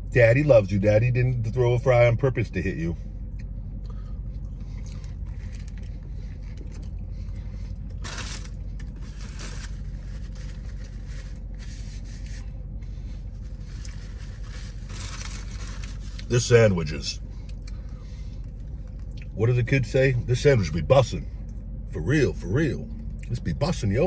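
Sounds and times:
low hum inside a car: 0.0s - 24.0s
rustling scraping noise: 7.4s - 16.3s.

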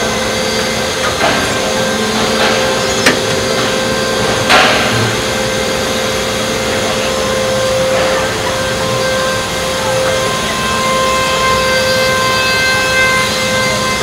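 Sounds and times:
machinery humming: 0.0s - 14.0s
sharp machine clack: 0.4s - 7.0s.

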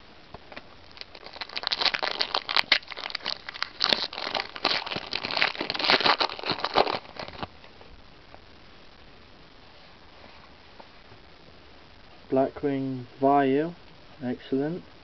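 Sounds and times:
foil wrapper tearing and crinkling: 0.9s - 7.5s.

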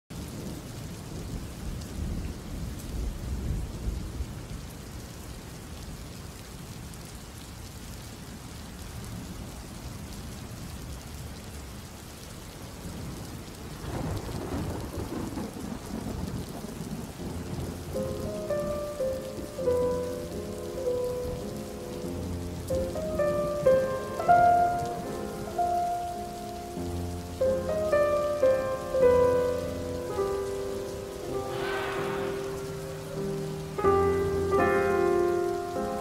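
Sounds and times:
steady rain: 0.1s - 36.0s
thunder rumbling: 12.9s - 19.6s, 31.3s - 34.3s.

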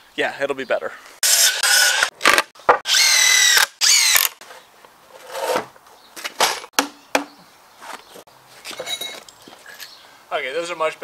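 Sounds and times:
cordless drill driving screws: 1.2s - 4.4s.

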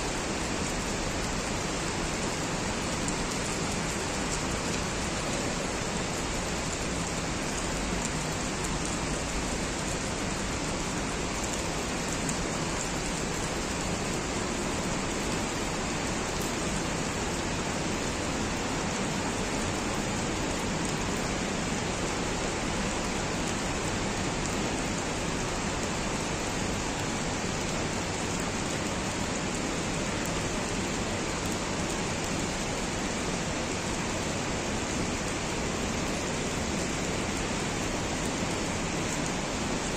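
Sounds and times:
steady rain falling: 0.0s - 39.9s.

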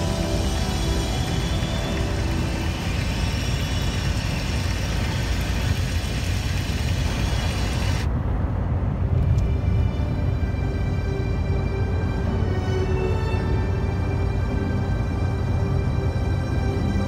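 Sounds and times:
high hiss: 0.0s - 8.1s
truck engine and road rumble: 0.0s - 17.0s.

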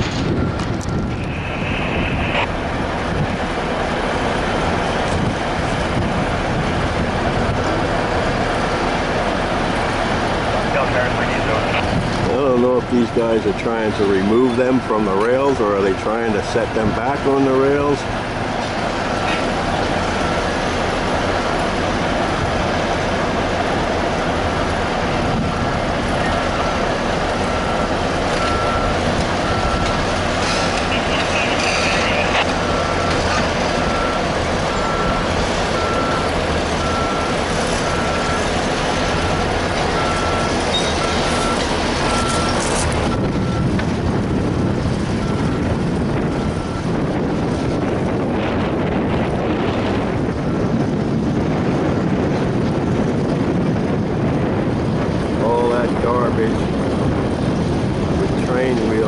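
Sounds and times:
heavy machinery running: 0.0s - 59.0s
backup alarm beeping: 16.0s - 18.0s, 25.4s - 43.8s.

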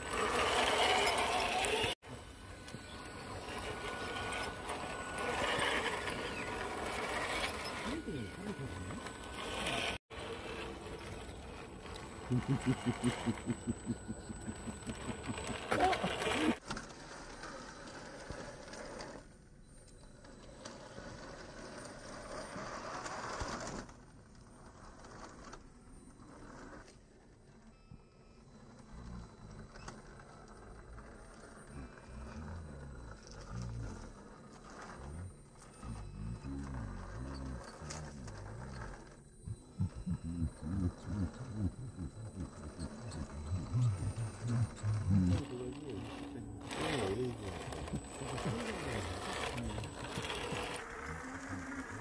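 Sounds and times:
tyres on gritty rock: 0.0s - 16.8s, 33.8s - 52.0s
rc car motor: 0.0s - 52.0s.

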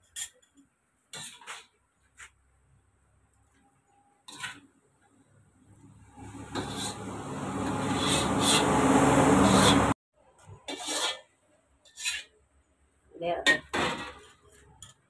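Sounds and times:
rasping rubbing noise: 6.4s - 10.0s.

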